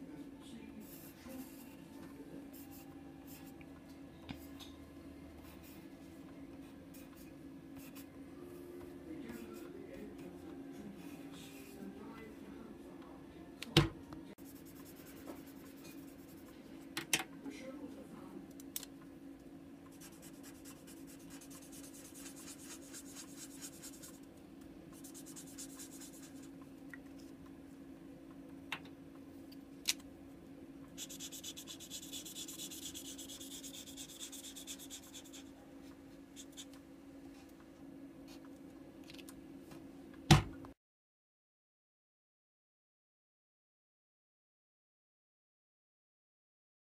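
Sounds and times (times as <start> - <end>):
steady low hum: 0.0 - 40.8
markers scratching on paper: 14.4 - 16.5, 19.9 - 24.2, 25.0 - 26.5, 31.0 - 35.5, 36.4 - 36.7
knock on desk: 40.3 - 40.6.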